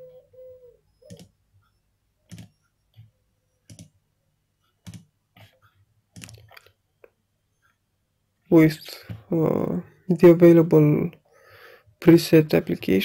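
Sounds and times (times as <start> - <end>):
computer mouse clicking: 1.0 - 1.4, 2.2 - 4.0, 4.7 - 6.8.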